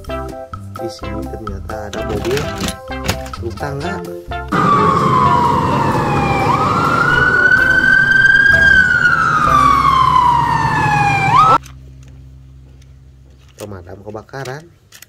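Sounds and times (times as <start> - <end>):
fire engine siren wailing: 4.5 - 11.6
truck engine rumble: 4.5 - 13.1.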